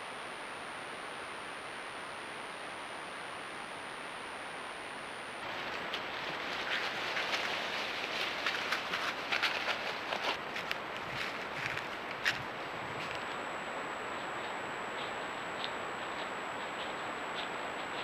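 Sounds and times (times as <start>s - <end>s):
steady hiss: 0.0s - 18.0s
animal walking through dry leaves: 5.4s - 13.4s.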